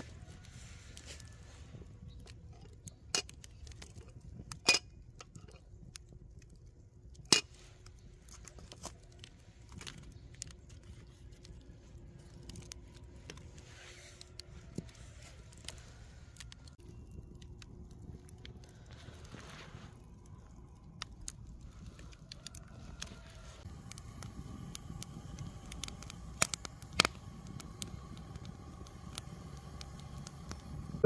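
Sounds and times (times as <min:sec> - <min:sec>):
fire crackling: 0:00.0 - 0:31.0
metal tongs clinking on charcoal: 0:02.2 - 0:06.1, 0:07.2 - 0:07.9.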